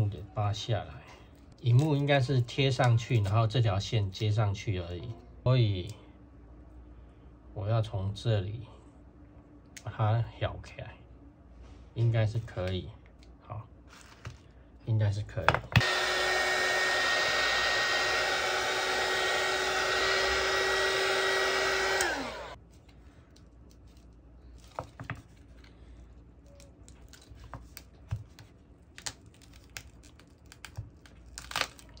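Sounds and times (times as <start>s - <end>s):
heat gun blowing with whine: 15.8s - 22.6s.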